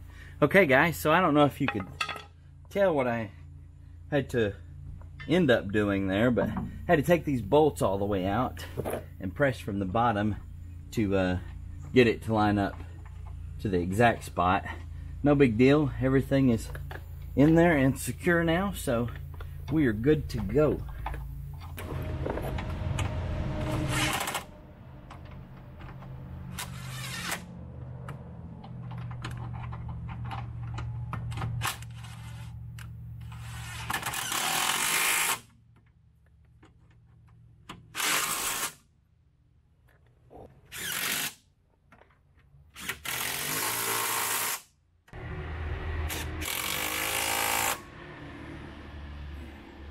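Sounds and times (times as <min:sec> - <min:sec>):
power tool running: 0:21.6 - 0:27.5, 0:33.2 - 0:35.4, 0:42.8 - 0:44.6, 0:45.2 - 0:48.2.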